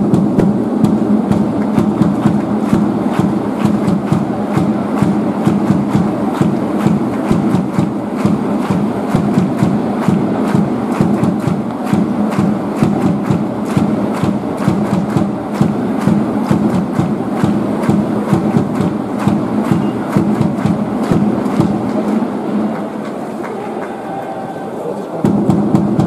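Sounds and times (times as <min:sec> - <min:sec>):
crowd clapping in rhythm: 0:00.0 - 0:26.0
crowd cheering: 0:00.8 - 0:26.0.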